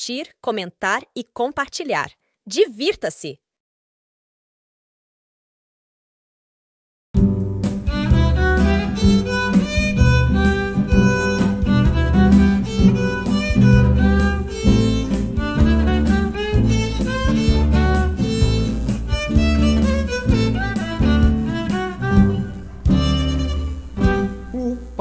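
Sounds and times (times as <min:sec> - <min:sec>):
upbeat instrumental music: 0:07.2 - 0:25.0.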